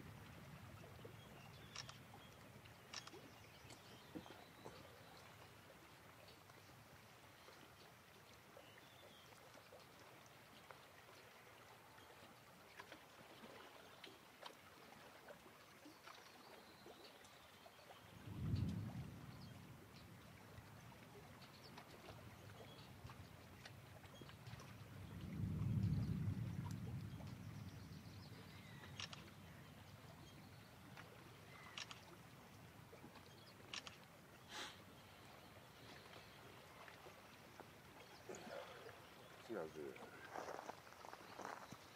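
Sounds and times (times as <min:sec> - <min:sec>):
small ticks: 0:01.6 - 0:02.0, 0:02.9 - 0:04.2, 0:28.8 - 0:29.3, 0:31.0 - 0:32.2, 0:33.7 - 0:34.1
seawater lapping on rocks: 0:33.0 - 0:41.9.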